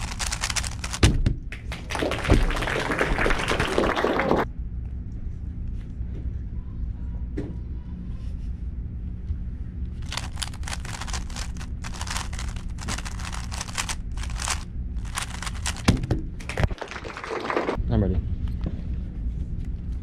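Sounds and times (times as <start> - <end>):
plastic puzzle cube clicking: 0.0 - 1.0, 10.0 - 15.9.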